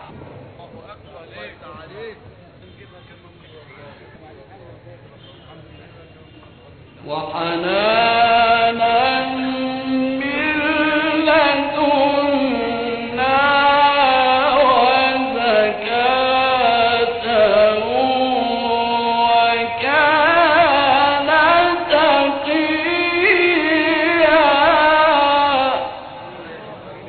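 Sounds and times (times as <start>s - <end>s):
man chanting: 7.0s - 27.0s.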